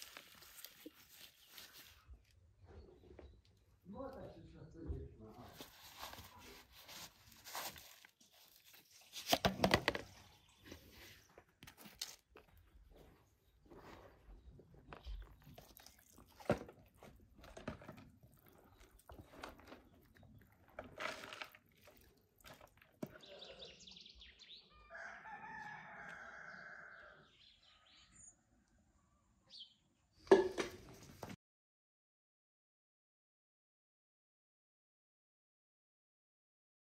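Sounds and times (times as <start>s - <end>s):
flowerpots knocking and clattering: 8.6s - 11.9s, 13.0s - 23.6s, 30.2s - 31.4s
rooster crowing: 24.7s - 28.0s.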